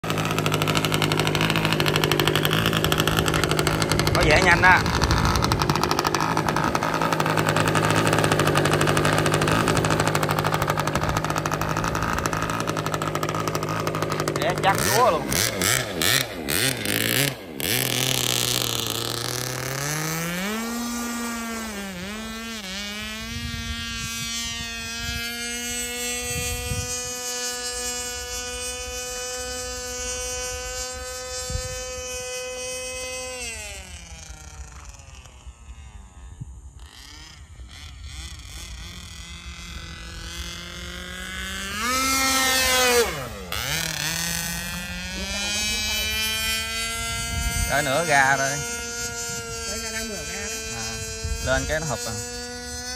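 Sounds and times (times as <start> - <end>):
model plane engine whine: 0.0 - 52.9.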